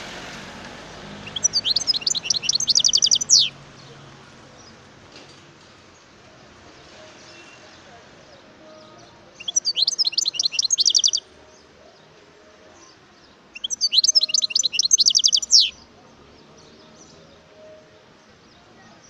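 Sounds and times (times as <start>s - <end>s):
bird twittering song: 1.2s - 3.9s, 8.3s - 12.1s, 12.8s - 19.0s.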